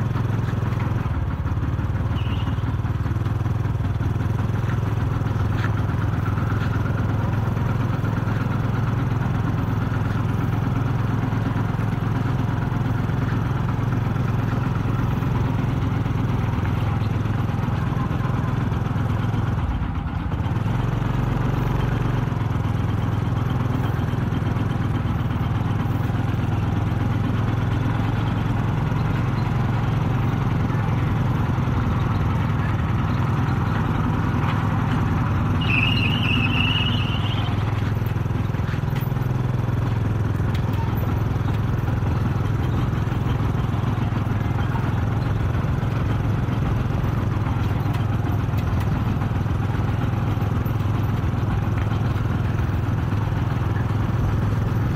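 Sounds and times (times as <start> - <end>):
tractor diesel engine drone: 0.0 - 54.9.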